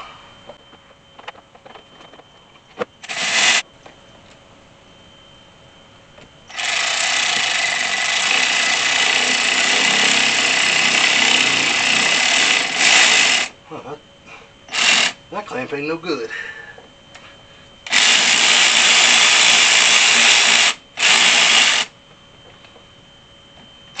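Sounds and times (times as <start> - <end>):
power driver spinning: 3.0 - 3.6, 6.5 - 13.5, 14.7 - 15.2, 17.8 - 21.9.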